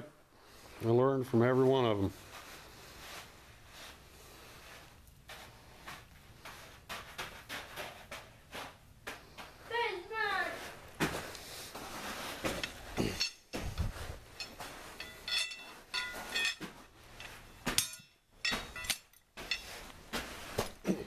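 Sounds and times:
metal pieces clinking on gravel: 14.3 - 19.9.

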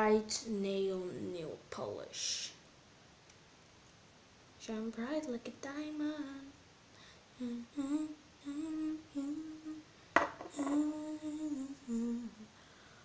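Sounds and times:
girl humming: 7.4 - 9.8, 10.5 - 12.6.

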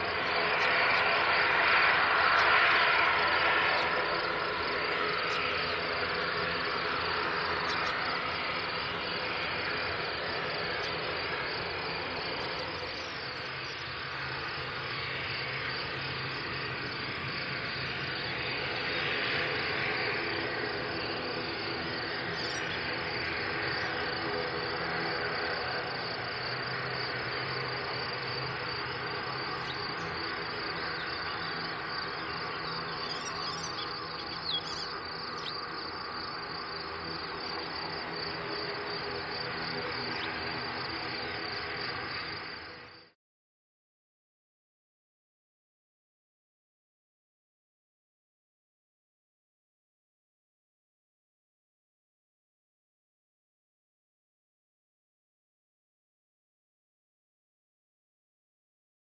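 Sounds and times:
distant turboprop drone: 0.0 - 43.1.

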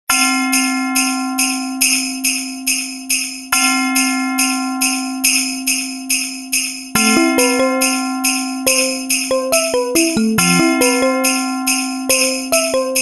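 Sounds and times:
sleigh bells shaken: 4.8 - 13.0
held chord: 7.0 - 13.0.

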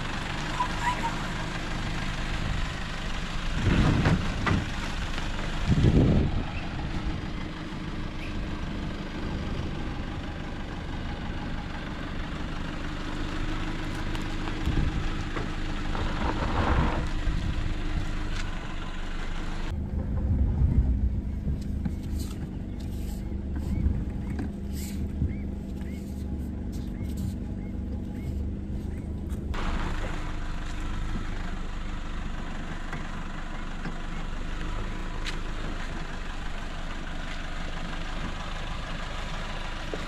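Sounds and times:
off-road vehicle engine at low revs: 0.0 - 40.0.

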